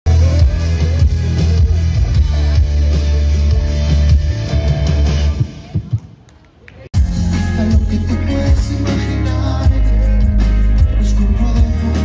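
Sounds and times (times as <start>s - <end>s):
live rock band playing: 0.0s - 5.8s, 6.9s - 12.0s
drums: 0.0s - 12.0s
electric guitar: 0.1s - 5.6s, 7.0s - 12.0s.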